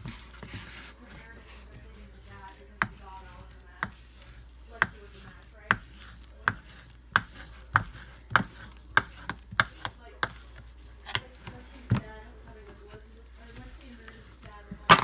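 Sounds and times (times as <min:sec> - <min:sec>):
knife chopping on cutting board: 0:02.4 - 0:12.2, 0:14.8 - 0:15.0.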